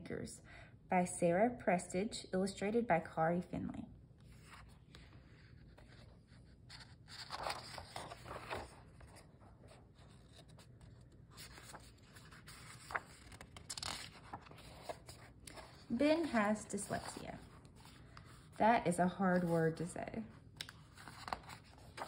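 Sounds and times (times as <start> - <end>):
pages rustling: 4.2 - 18.6, 20.5 - 22.0.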